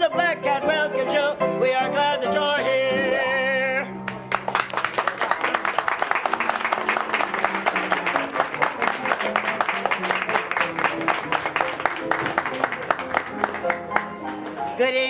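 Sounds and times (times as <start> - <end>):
instrumental accompaniment: 0.0 - 15.0
audience applause: 4.0 - 14.7.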